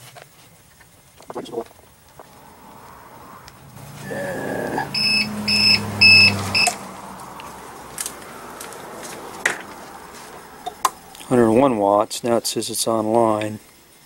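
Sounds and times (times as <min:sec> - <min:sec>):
low hum: 0:01.1 - 0:11.2
short high beeps: 0:04.9 - 0:06.8.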